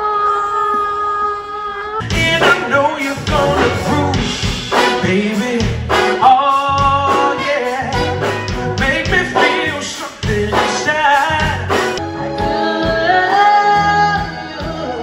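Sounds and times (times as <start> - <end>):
live band playing: 2.0 - 15.0
man singing: 2.0 - 15.0
saxophone: 7.2 - 9.8, 11.7 - 15.0.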